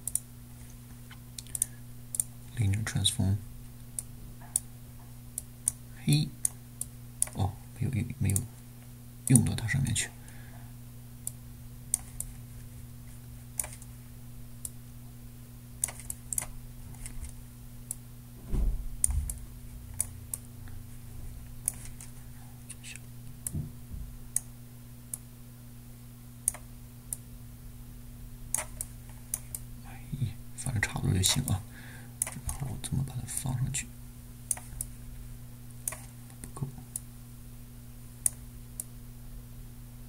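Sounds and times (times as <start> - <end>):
steady low hum: 0.0 - 40.0
mouse and keyboard clicks: 13.6 - 13.9, 15.8 - 17.4, 21.6 - 22.1, 28.5 - 29.6, 32.2 - 32.7, 34.5 - 34.9, 35.9 - 36.1
dull low thump: 18.4 - 19.4.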